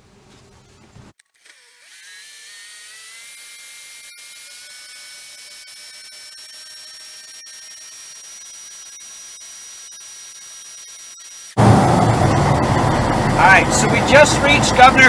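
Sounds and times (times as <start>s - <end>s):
high steady engine whine: 7.4s - 15.0s.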